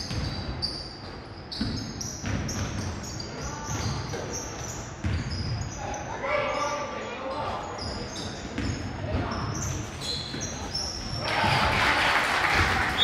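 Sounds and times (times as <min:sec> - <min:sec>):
basketball bouncing on hardwood floor: 0:00.0 - 0:00.4, 0:01.5 - 0:02.9, 0:05.0 - 0:05.6
sneakers squeaking: 0:00.0 - 0:11.8.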